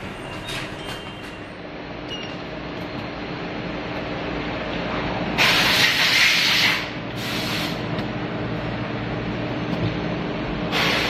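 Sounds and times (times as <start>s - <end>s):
compressed air hiss: 5.4s - 7.8s, 10.7s - 11.0s.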